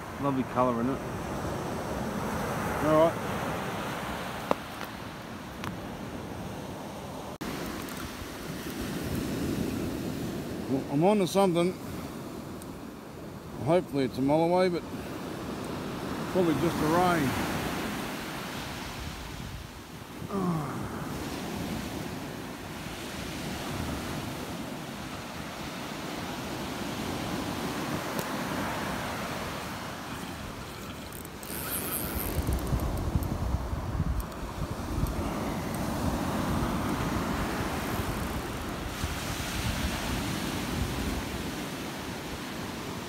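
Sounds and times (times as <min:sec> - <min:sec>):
surf washing onto beach: 0:00.0 - 0:43.0
wind on microphone: 0:26.2 - 0:41.7.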